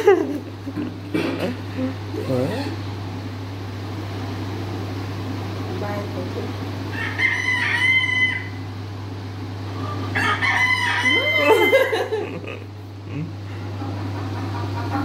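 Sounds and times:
rooster crowing through tv speakers: 6.9s - 8.7s, 9.8s - 12.0s.

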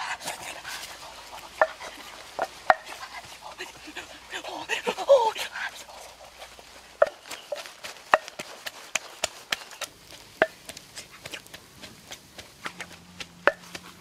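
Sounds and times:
wood fire crackling and popping: 6.0s - 14.0s.

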